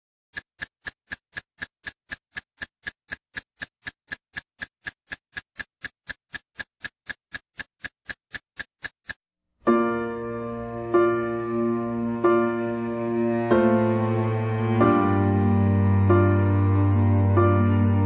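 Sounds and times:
steady ticking clicks: 0.3s - 9.2s.

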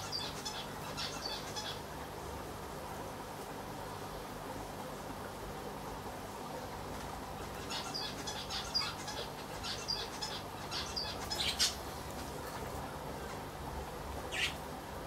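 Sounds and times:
small bird chirping: 0.0s - 1.8s, 7.6s - 11.8s, 14.3s - 14.6s.

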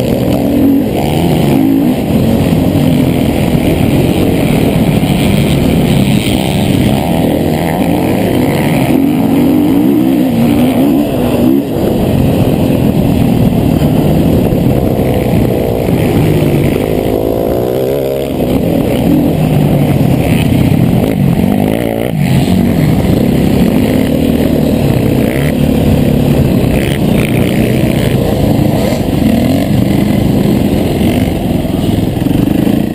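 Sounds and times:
motorcycle engine revving: 0.0s - 32.9s.

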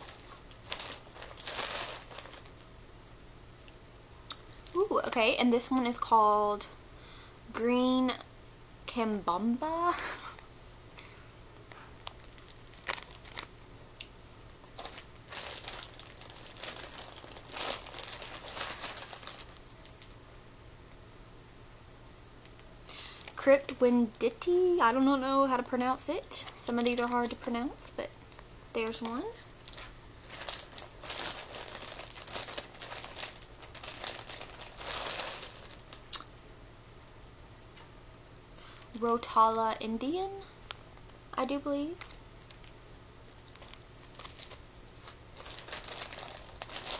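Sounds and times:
plastic bags crinkling: 0.0s - 2.7s, 11.9s - 13.5s, 14.6s - 20.2s, 22.9s - 23.4s, 26.5s - 27.6s, 28.3s - 36.0s, 43.4s - 46.9s.

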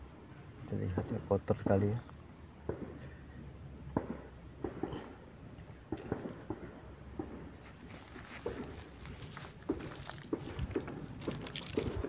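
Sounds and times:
crickets droning: 0.0s - 12.0s
soft knocks and rustles on leaves: 7.2s - 12.0s.

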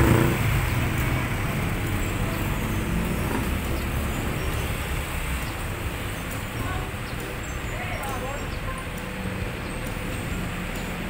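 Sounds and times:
low traffic hum: 0.0s - 11.0s
passing vehicle rumble: 0.0s - 11.0s
faint voices: 5.8s - 10.1s.

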